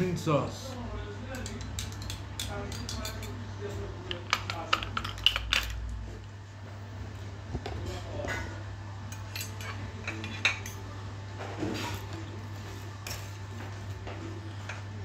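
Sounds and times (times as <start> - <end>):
cutlery scraping on a plate: 1.4 - 3.4, 7.8 - 10.8.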